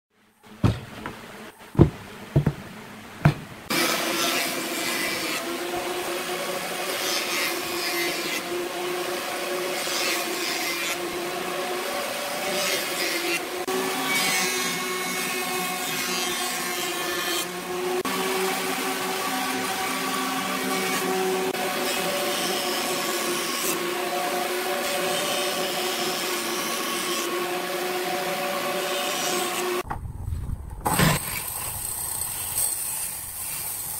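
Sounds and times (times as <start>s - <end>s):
wood blocks knocking on workbench: 0.6s - 3.6s
jointer machine humming and hissing: 0.6s - 29.8s.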